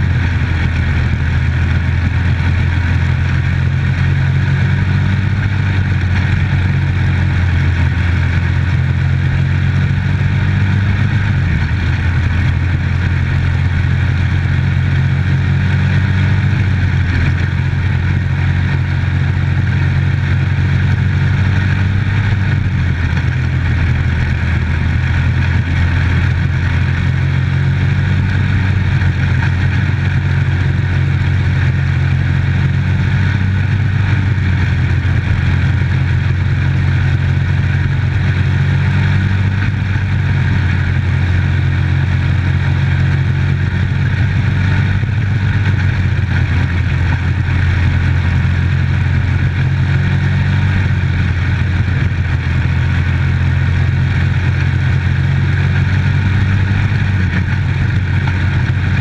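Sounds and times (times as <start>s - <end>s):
race car engine running hard: 0.0s - 59.0s.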